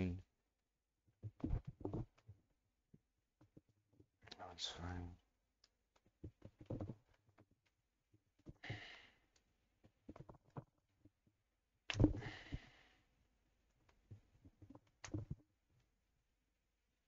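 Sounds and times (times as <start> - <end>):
clicks and knocks of handling: 1.2 - 2.4, 5.6 - 7.8, 9.3 - 11.2, 13.8 - 15.5
breathy exhale: 8.6 - 9.2, 12.2 - 13.0.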